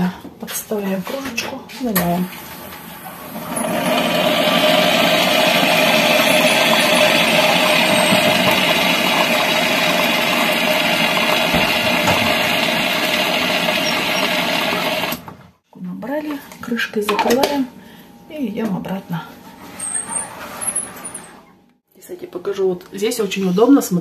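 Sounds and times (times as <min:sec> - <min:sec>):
hot-water dispenser humming: 0:02.0 - 0:15.4.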